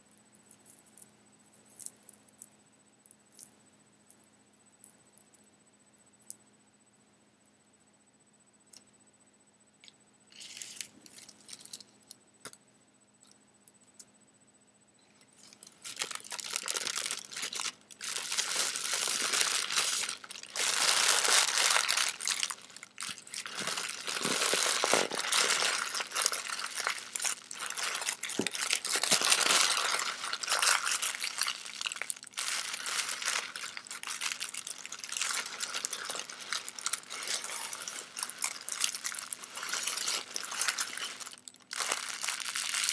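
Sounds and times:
tissue paper crumpling: 0:15.8 - 0:42.9.

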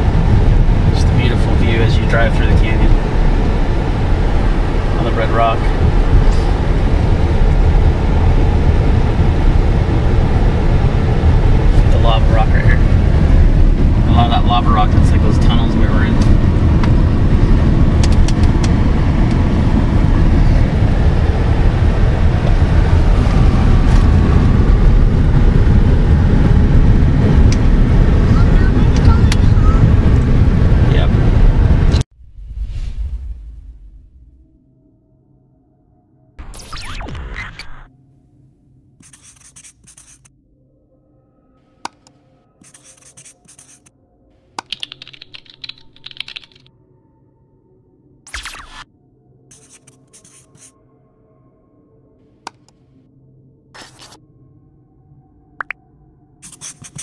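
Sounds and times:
car road and engine rumble: 0:00.0 - 0:34.6
marker scratching: 0:39.0 - 0:40.3, 0:42.6 - 0:43.9, 0:49.5 - 0:50.7, 0:53.8 - 0:54.2, 0:56.4 - 0:57.0
keyboard typing clicks: 0:44.6 - 0:46.7.

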